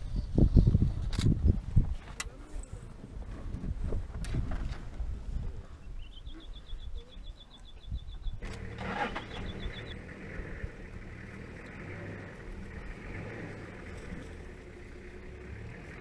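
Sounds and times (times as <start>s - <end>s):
vehicle engine idling: 8.4s - 16.0s.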